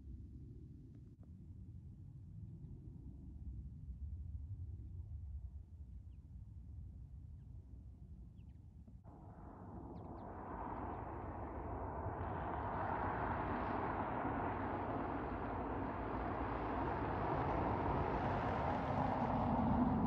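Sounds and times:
car approaching on road: 9.1s - 20.0s
low engine hum: 9.1s - 20.0s.

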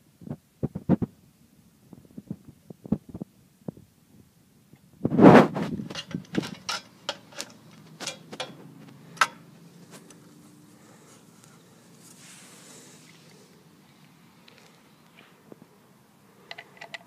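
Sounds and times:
metallic clicks and knocks: 5.9s - 8.6s, 9.2s - 9.4s, 16.5s - 17.0s.

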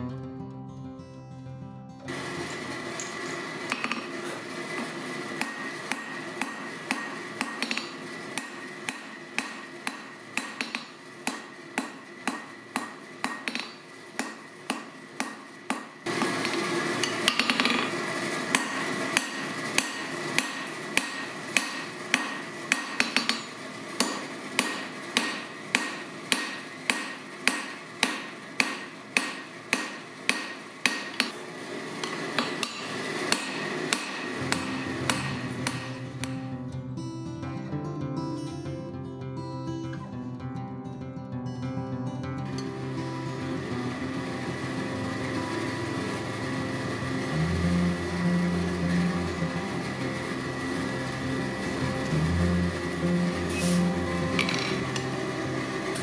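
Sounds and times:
steady hum: 2.1s - 37.4s, 42.4s - 56.0s
hammer clanging on anvil: 3.7s - 4.4s, 5.4s - 17.9s, 18.5s - 31.4s, 32.0s - 36.5s, 53.5s - 55.1s.

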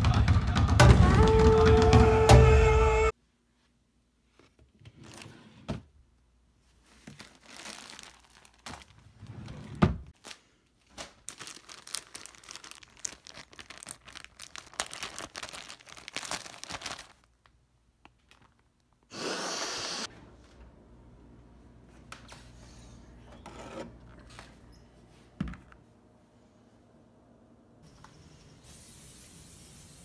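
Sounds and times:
plastic bag crinkling: 6.9s - 9.1s, 10.2s - 19.0s.

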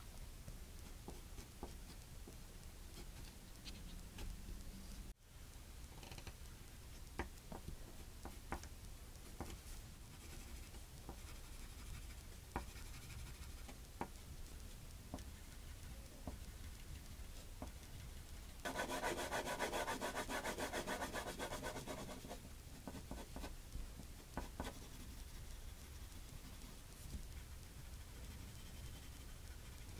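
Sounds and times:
pencil strokes on paper: 0.8s - 2.0s, 9.2s - 29.9s
pencil tapping: 0.9s - 2.4s, 7.1s - 8.7s, 9.3s - 9.6s, 10.2s - 14.2s, 18.7s - 25.5s.

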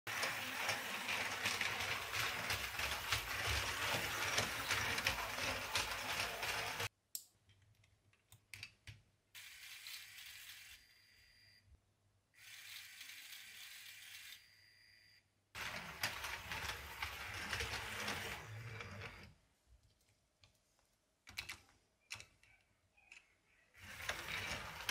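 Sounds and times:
toy motor and gears clattering: 0.1s - 6.9s, 9.4s - 11.2s, 12.4s - 14.6s, 15.6s - 19.3s, 21.3s - 24.9s.

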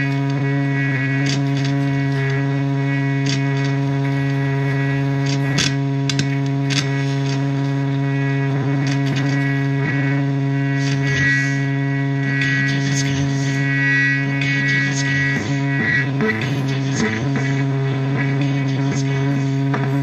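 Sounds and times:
crackles and clicks: 0.0s - 11.6s
distorted low drone: 0.0s - 20.0s.

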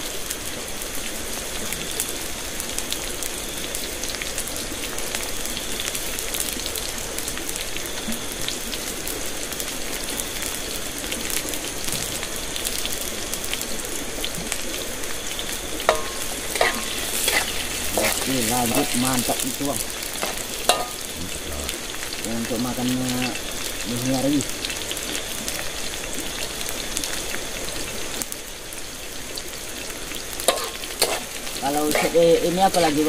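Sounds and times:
rain pattering: 0.0s - 33.0s.

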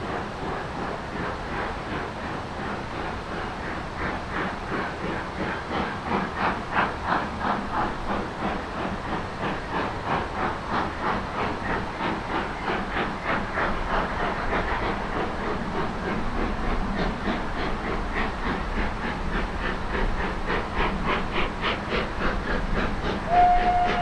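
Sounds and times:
steam locomotive chuffing: 0.0s - 24.0s.

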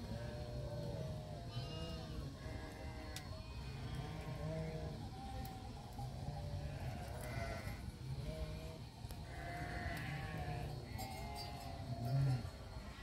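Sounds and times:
sheep bleating: 0.1s - 3.2s, 6.6s - 13.0s.

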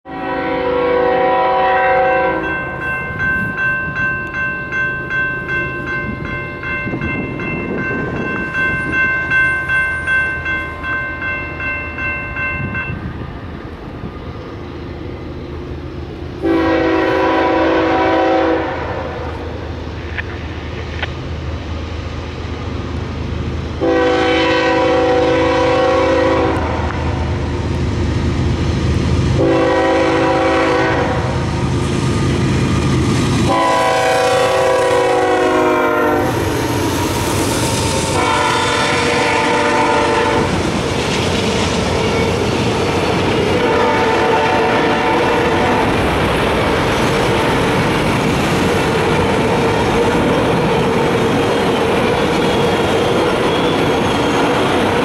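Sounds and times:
locomotive air horn blasts: 0.1s - 2.6s, 16.4s - 19.3s, 23.8s - 27.0s, 29.4s - 31.4s, 33.5s - 36.5s, 38.1s - 40.6s, 43.6s - 45.9s
diesel locomotive rumble: 0.1s - 55.0s
bell ringing rhythmically: 2.4s - 13.1s.

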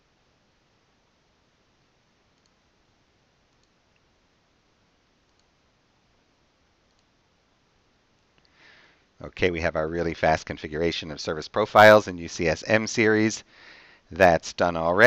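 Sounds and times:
faint computer mouse clicks: 2.4s - 2.6s, 3.5s - 4.1s, 5.3s - 5.5s, 6.9s - 7.1s.

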